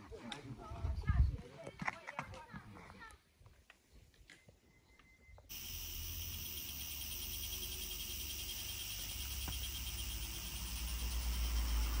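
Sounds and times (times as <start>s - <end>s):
insects chirring: 5.5s - 12.0s.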